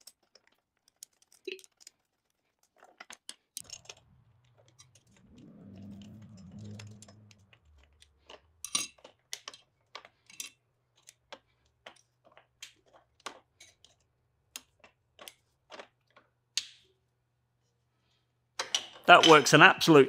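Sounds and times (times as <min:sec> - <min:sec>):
low rumble: 0:03.6 - 0:08.9.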